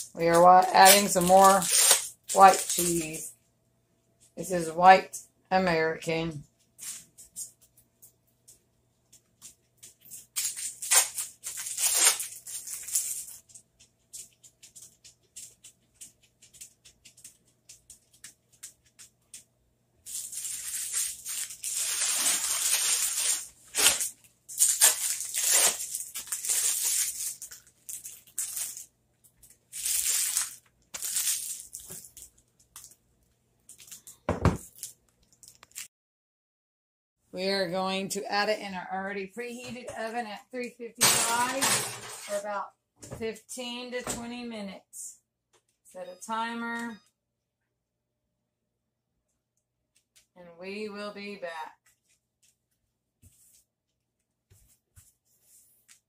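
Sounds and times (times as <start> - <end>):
plastic wrapping crinkling: 0.0 - 3.2, 9.1 - 19.4, 20.0 - 35.9.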